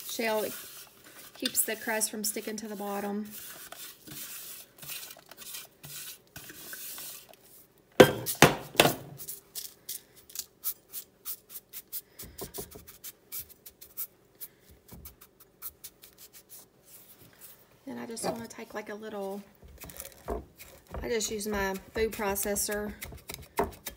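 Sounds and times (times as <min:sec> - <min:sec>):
crumbs sliding into dish: 0:00.0 - 0:01.8.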